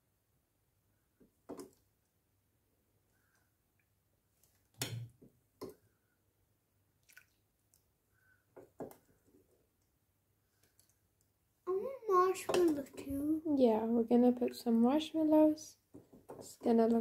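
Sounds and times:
liquid dripping: 7.0s - 7.9s.

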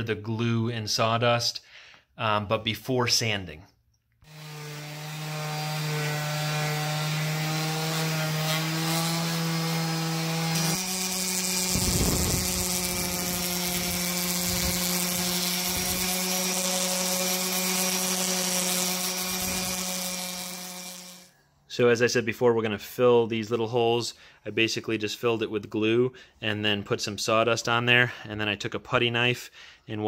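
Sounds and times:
orbital sander humming: 4.3s - 21.3s
sander pad rubbing wood: 4.3s - 21.3s.

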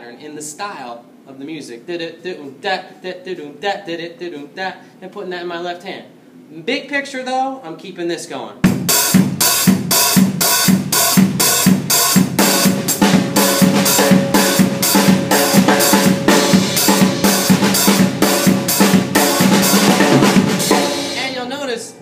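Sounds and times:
bass drum beat: 8.7s - 21.4s
snare drum strokes: 8.7s - 21.6s.

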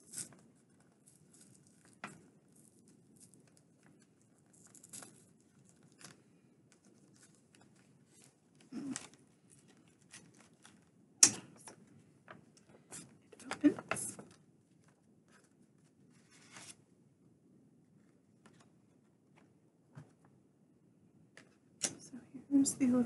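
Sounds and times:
paper and packaging rustling: 0.0s - 11.0s, 11.6s - 16.8s.

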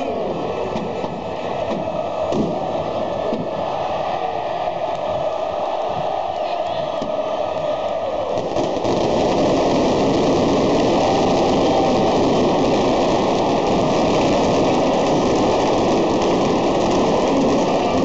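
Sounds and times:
stadium crowd roar: 0.0s - 18.0s
fireworks crackling: 8.3s - 18.0s.

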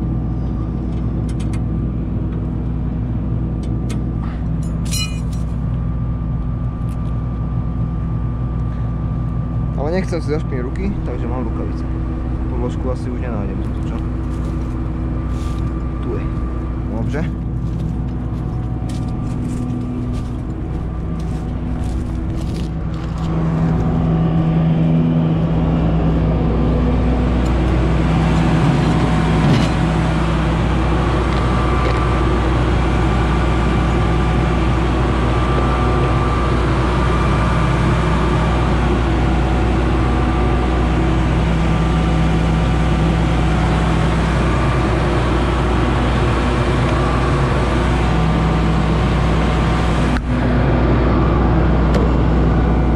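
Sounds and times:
combine harvester engine running: 0.0s - 52.9s.

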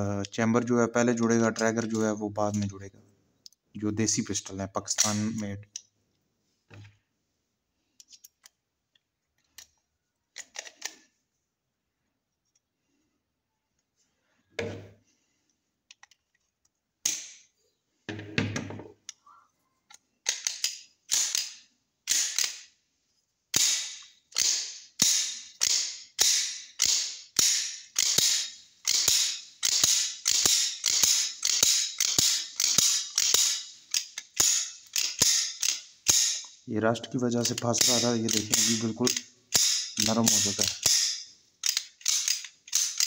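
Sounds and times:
pistol slide racking metallic clacks: 10.4s - 11.1s, 20.2s - 22.8s, 23.5s - 36.6s, 37.4s - 43.0s.

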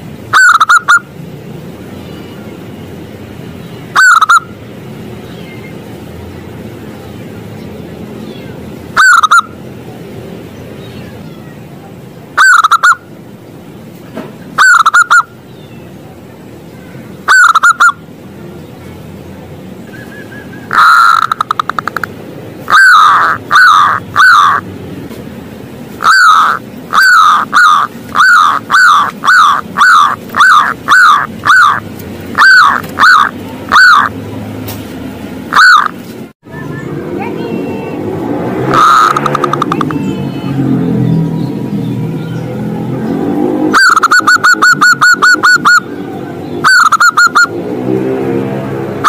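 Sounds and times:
dove cooing: 0.3s - 1.0s, 12.4s - 13.0s, 14.6s - 15.3s, 17.3s - 18.0s, 22.7s - 24.6s, 26.0s - 31.8s, 32.4s - 34.2s, 38.7s - 40.0s, 43.7s - 45.9s, 46.6s - 47.5s.

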